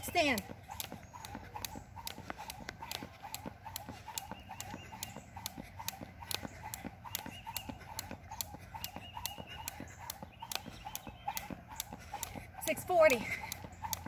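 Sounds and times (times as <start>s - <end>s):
jump rope slapping asphalt: 0.0s - 14.0s.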